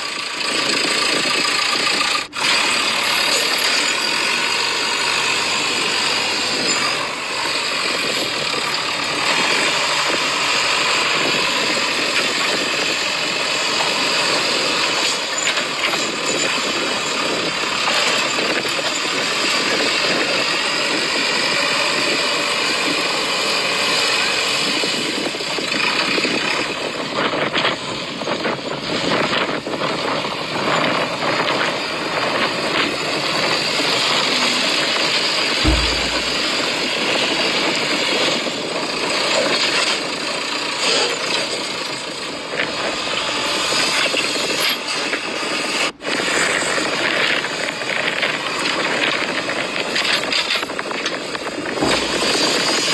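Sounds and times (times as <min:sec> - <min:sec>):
toy excavator motors whirring: 0:00.0 - 0:26.8
low thump: 0:35.6 - 0:36.7.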